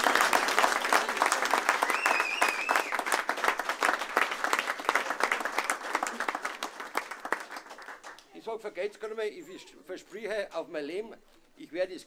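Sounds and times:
audience applauding: 0.0s - 8.4s
wavering whistle: 1.8s - 3.0s.

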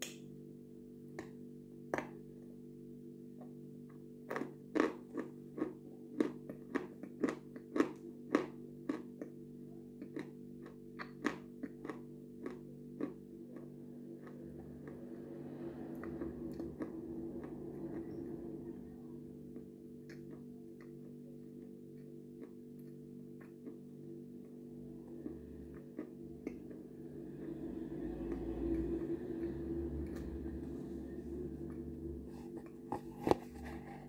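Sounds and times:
steady low hum: 0.0s - 34.0s
soft chewing mouth noise: 3.4s - 18.4s, 19.5s - 27.6s.

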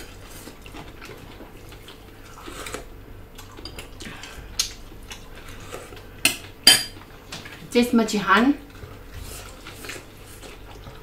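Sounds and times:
chewing and mouth sounds: 0.0s - 7.6s.

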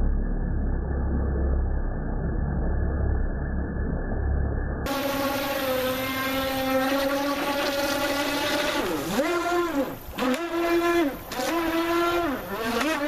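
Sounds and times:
rc boat motor whine: 4.9s - 13.0s.

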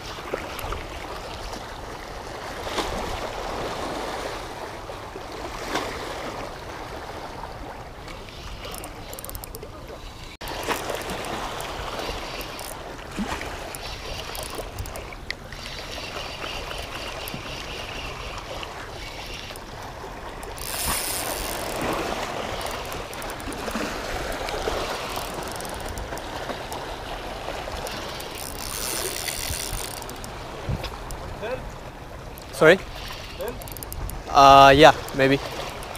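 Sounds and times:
water lapping against boat hull: 0.0s - 35.9s
wind rumble on microphone: 29.3s - 31.8s.

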